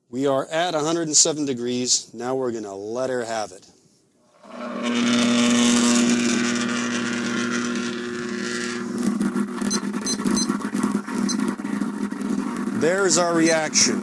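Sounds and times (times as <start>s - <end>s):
electrical crackling and sizzling: 4.4s - 14.0s
loud electrical buzz: 4.4s - 14.0s.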